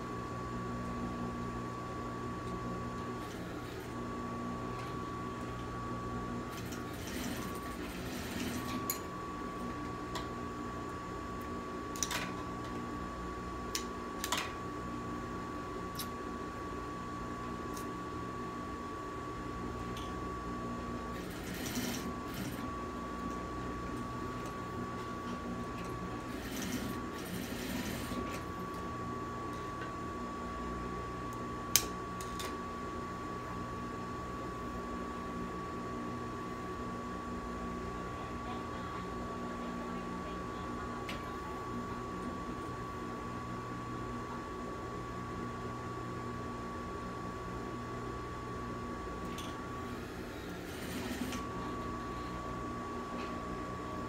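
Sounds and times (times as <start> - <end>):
sewing machine motor hum: 2.4 - 10.4, 20.7 - 28.9, 49.4 - 52.1
sewing machine stitching: 6.5 - 8.9, 21.1 - 22.7, 26.2 - 28.5, 50.1 - 51.4.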